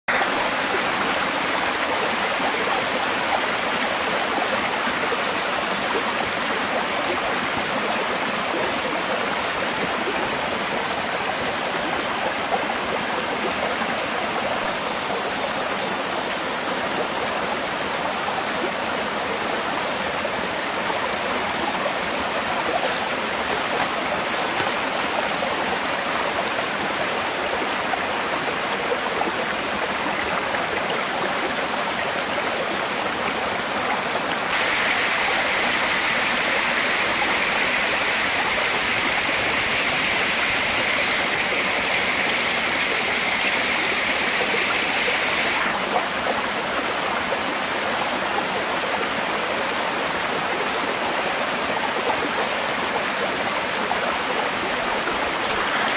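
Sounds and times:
water rushing over rocks: 20.6 - 55.9.

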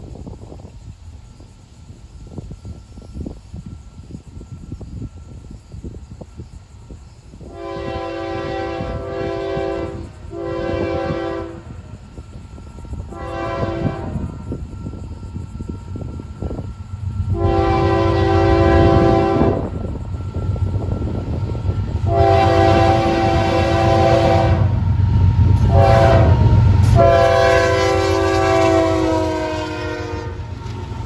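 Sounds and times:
engine and wheels rumbling: 0.0 - 31.0
locomotive air horn blasts: 7.4 - 12.0, 13.0 - 15.1, 17.2 - 19.9, 21.6 - 24.9, 25.5 - 30.9.

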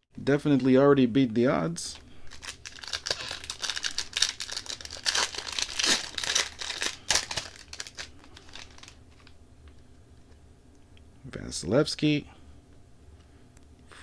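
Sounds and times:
wrapper tearing and crinkling: 2.3 - 9.4.

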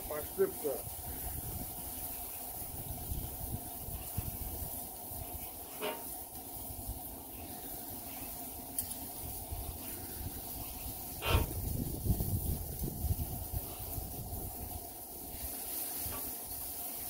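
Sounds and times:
meat sizzling on griddle: 0.0 - 17.0
knife and tongs scraping steel: 5.7 - 6.1.

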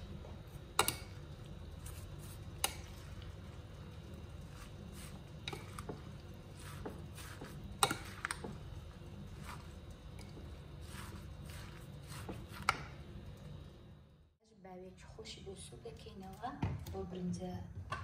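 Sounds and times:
wet rustle of salad vegetables: 1.4 - 12.7.

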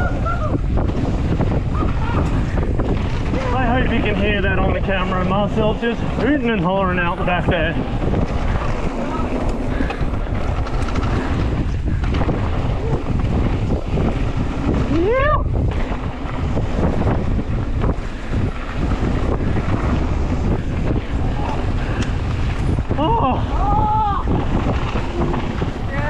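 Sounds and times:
rider whooping: 0.0 - 4.0, 8.5 - 13.6, 14.7 - 16.0, 20.4 - 26.0
bike knocking and rattling: 0.0 - 26.0
wind rushing over microphone: 0.0 - 26.0.

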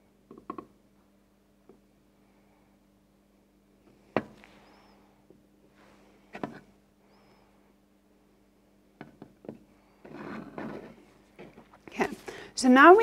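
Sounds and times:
low steady hum: 0.0 - 13.0
plastic clicks and knocks: 0.3 - 0.7.

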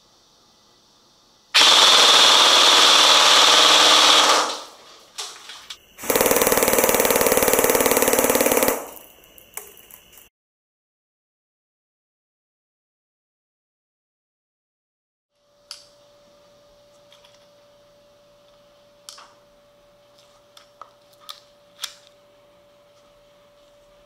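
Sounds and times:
airsoft gun full-auto bursts: 1.6 - 4.8, 6.0 - 9.0.

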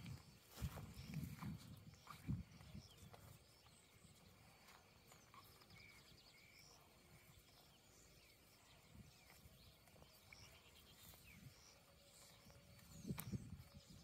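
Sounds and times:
bird chirps and trills: 0.0 - 14.0.

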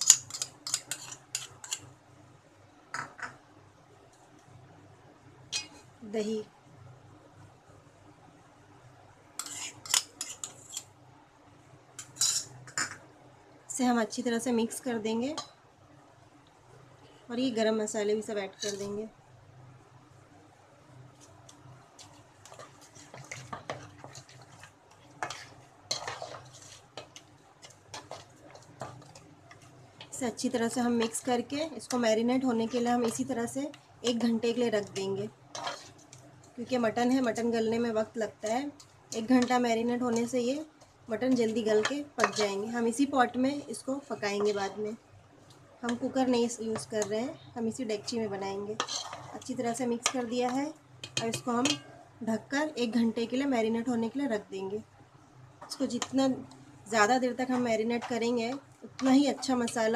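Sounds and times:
spoon scraping a ceramic plate: 0.0 - 1.8, 9.4 - 10.9, 22.5 - 27.2, 35.5 - 36.0, 41.8 - 42.6, 48.8 - 50.2.

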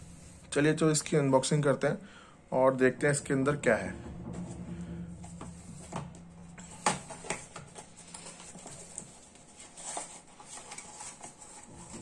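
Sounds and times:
cardboard box rustling: 6.7 - 12.0.

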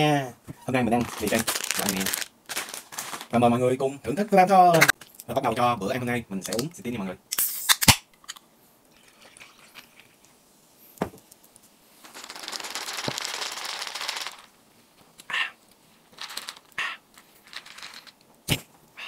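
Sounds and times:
drink pouring over ice: 9.0 - 10.2.

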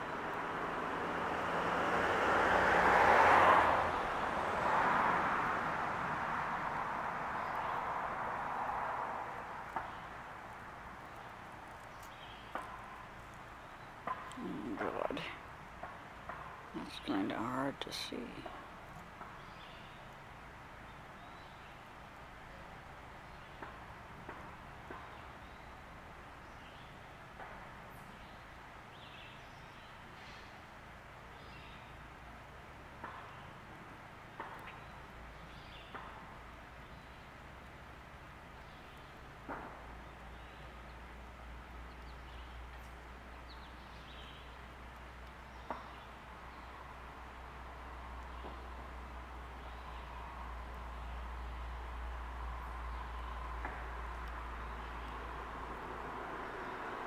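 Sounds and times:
distant birds chirping: 6.4 - 57.0
distant bird chirps: 33.0 - 37.8, 38.4 - 57.0.

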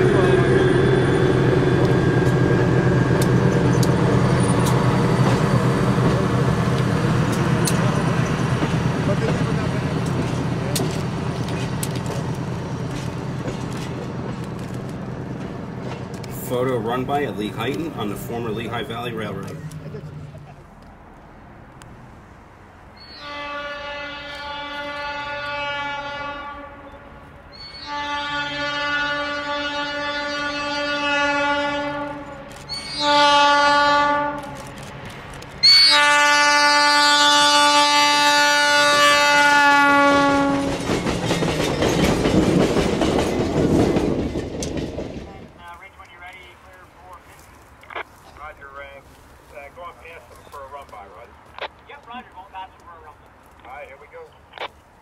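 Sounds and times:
train horn blasts: 0.0 - 3.3, 23.1 - 27.2, 27.8 - 34.7, 35.6 - 40.9
diesel engines humming: 0.0 - 27.9.

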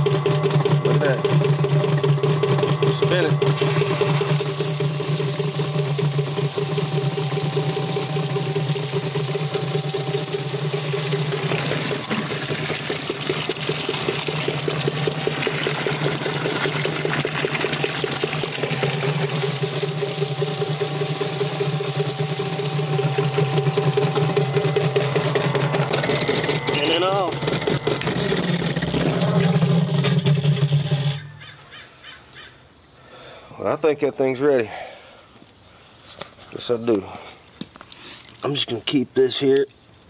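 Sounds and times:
electric motor humming: 0.0 - 31.3
water spraying and splashing: 3.6 - 29.2.

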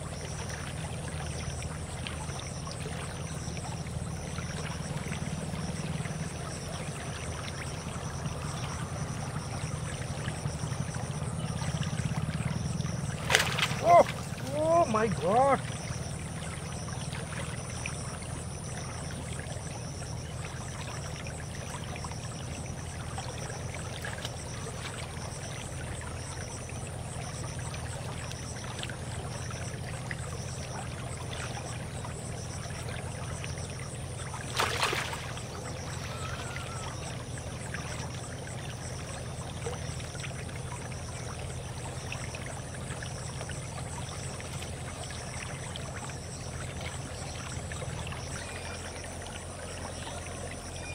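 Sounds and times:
stream flowing and trickling: 0.0 - 50.9.

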